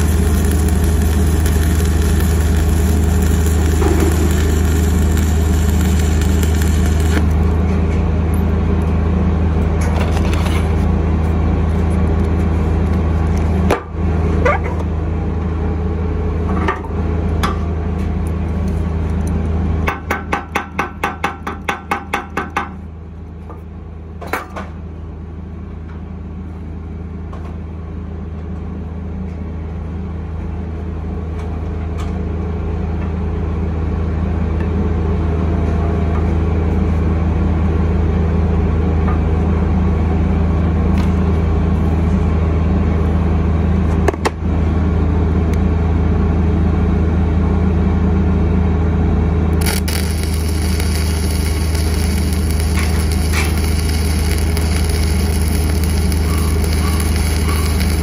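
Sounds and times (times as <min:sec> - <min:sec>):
welding arc crackling: 0:00.0 - 0:07.7, 0:49.6 - 0:58.0
engine humming: 0:00.0 - 0:13.6, 0:49.4 - 0:58.0.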